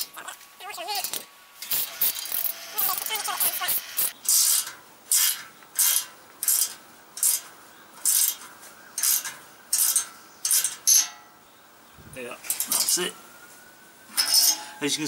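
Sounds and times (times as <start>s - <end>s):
nut grating metal on metal: 1.0s - 11.2s, 14.2s - 14.8s.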